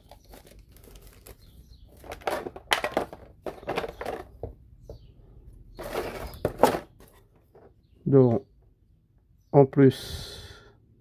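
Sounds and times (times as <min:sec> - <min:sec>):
plastic bag crinkling: 0:00.0 - 0:04.1.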